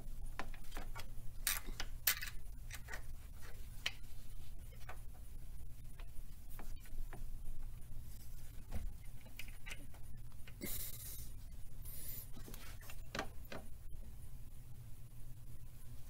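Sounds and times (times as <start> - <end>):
steady low hum: 0.0 - 16.0
metal parts clicking and tapping: 0.4 - 3.1.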